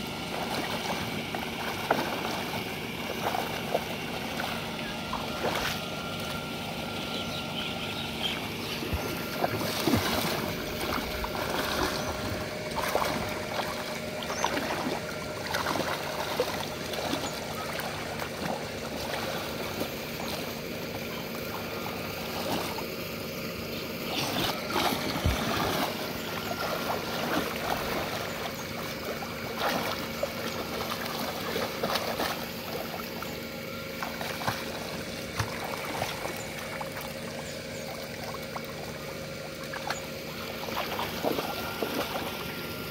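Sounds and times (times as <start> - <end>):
muddy water sloshing and splashing: 0.0 - 42.9.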